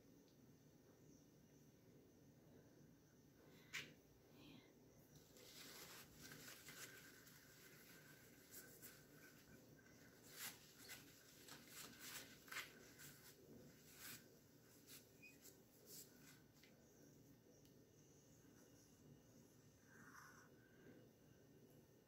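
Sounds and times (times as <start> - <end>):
paper towel wiping whiteboard: 5.4 - 16.7.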